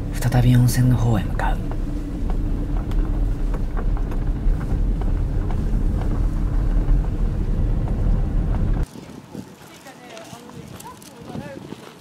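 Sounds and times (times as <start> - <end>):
vehicle engine rumble: 0.0 - 8.9.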